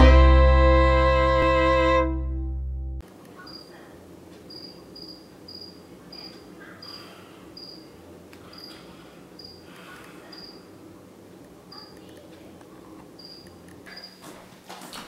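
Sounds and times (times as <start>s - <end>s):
faint room noise: 3.0s - 15.0s
cricket chirping: 4.5s - 6.2s, 7.6s - 7.9s, 9.4s - 9.6s, 13.2s - 14.2s.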